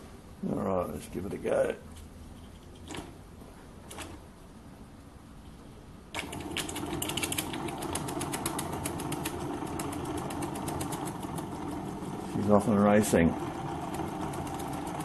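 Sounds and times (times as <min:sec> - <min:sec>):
model steam engine running: 0:06.2 - 0:15.0.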